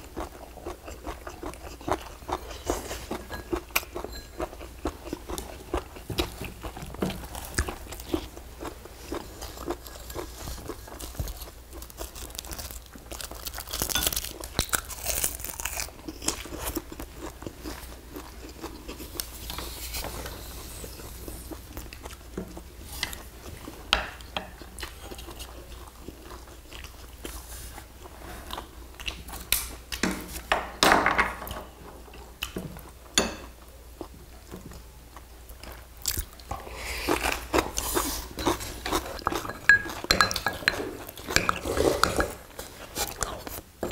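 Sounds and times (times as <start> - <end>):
chewing and crunching food: 0.0 - 30.4, 31.8 - 43.9
chopsticks clicking on bowls: 38.4 - 42.4.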